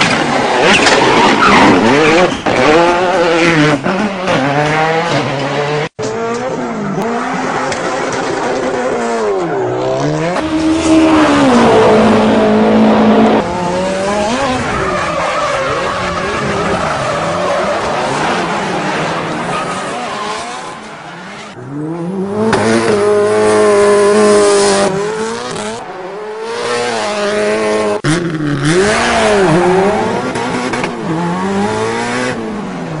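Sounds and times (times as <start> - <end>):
tires squealing and skidding: 0.2 - 3.6, 14.0 - 21.6.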